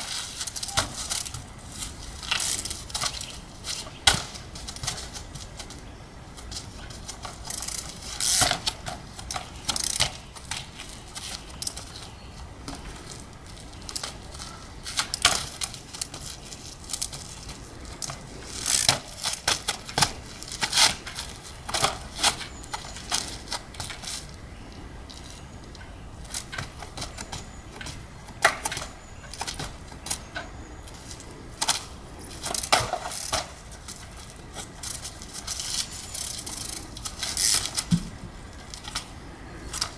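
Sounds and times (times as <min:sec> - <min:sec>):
bike knocking on stone blocks: 0:31.6 - 0:34.7, 0:37.3 - 0:38.4.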